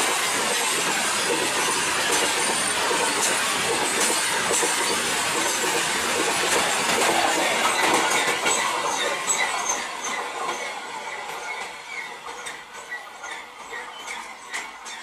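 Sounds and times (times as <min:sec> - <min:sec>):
freight train wheels clattering: 0:00.0 - 0:15.0
high-pitched wheel squeaks: 0:07.1 - 0:15.0.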